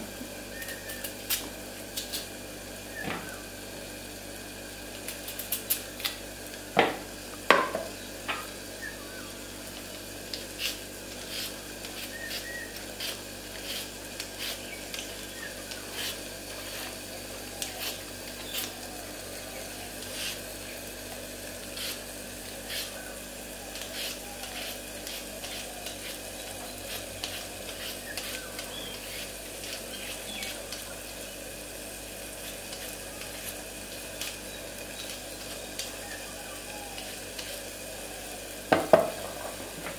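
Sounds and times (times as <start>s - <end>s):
steady background hum: 0.0s - 39.9s
potato scraped on grater: 10.5s - 15.0s, 15.8s - 17.0s, 20.1s - 20.4s, 21.7s - 22.0s, 22.6s - 23.0s, 23.8s - 30.6s.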